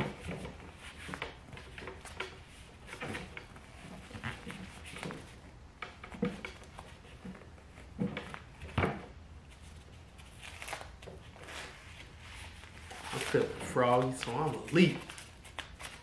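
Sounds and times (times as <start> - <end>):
gloved hands rubbing and rustling: 9.2 - 16.0.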